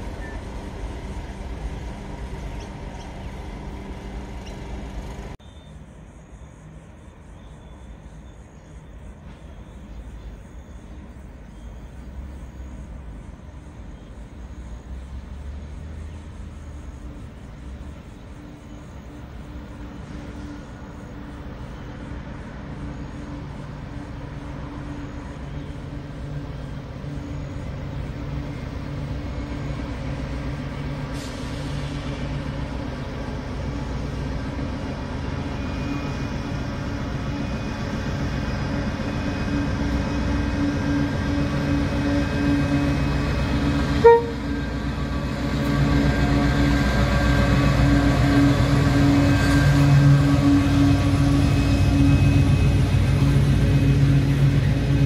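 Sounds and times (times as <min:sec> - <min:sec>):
diesel locomotive engine drone: 0:00.0 - 0:55.0
short train horn toot: 0:43.9 - 0:44.8.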